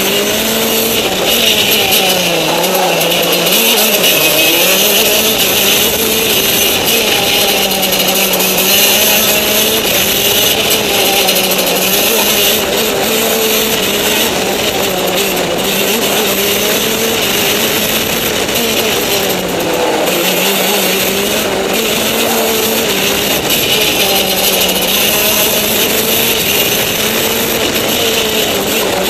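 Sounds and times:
go-kart engine running hard: 0.0s - 29.0s.

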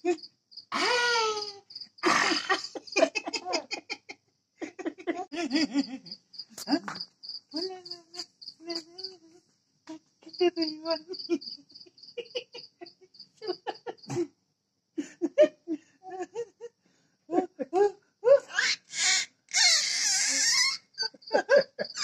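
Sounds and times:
cricket chirping: 0.0s - 4.0s, 5.3s - 14.2s, 19.6s - 22.0s
baby laughing and cooing: 0.8s - 5.5s.

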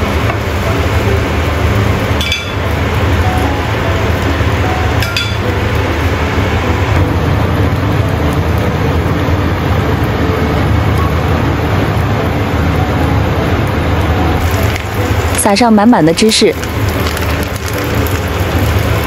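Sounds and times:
stovetop cooking rumble and hiss: 0.0s - 19.0s.

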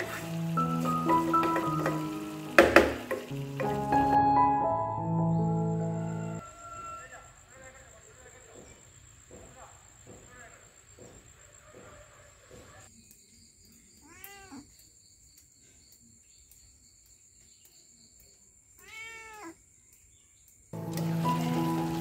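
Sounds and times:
music: 0.0s - 6.4s, 20.8s - 22.0s
cat meowing: 14.0s - 14.7s, 18.8s - 19.6s.

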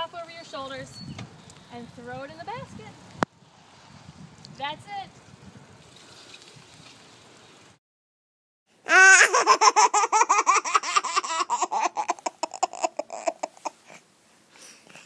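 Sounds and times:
baby laughing: 8.9s - 14.0s.

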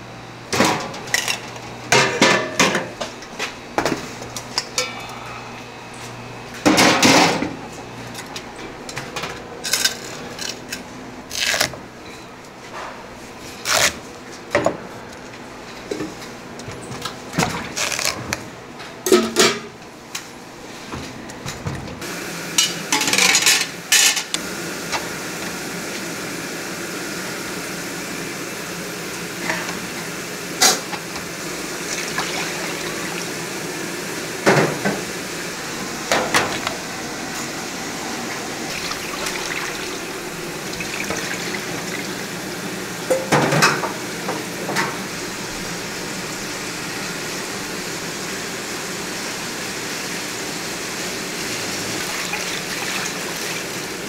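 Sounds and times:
metal kitchenware clanking: 22.6s - 24.3s.

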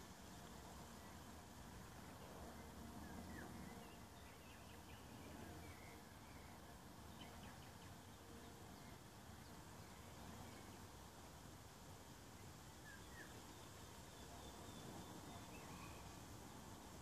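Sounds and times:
low steady hiss: 0.0s - 17.0s
faint bird chirps: 2.0s - 10.9s, 12.4s - 16.6s.

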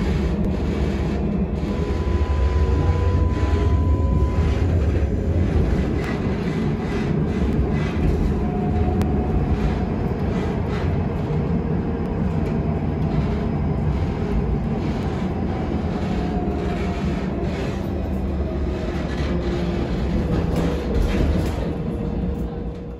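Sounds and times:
tram wheels rumbling on rails: 0.0s - 22.9s
faint whining tones: 0.4s - 10.3s.

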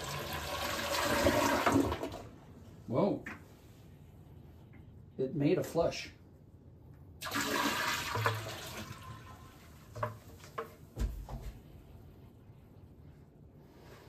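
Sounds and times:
toilet bowl flushing: 0.0s - 2.4s, 7.2s - 10.6s.

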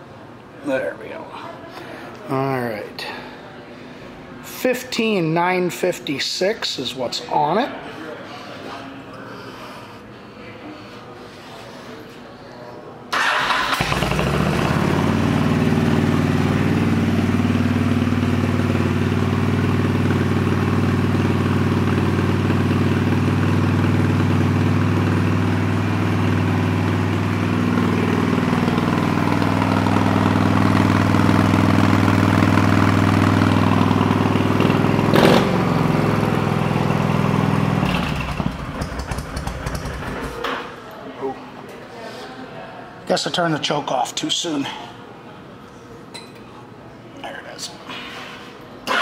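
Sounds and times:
motorcycle engine idling: 13.9s - 40.4s.

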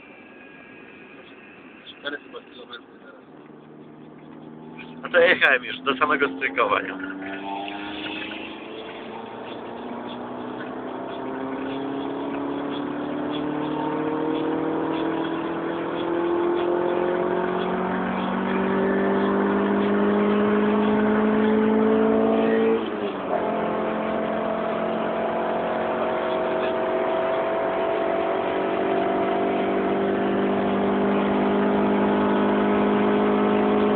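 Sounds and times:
car engine revving: 0.0s - 33.9s.

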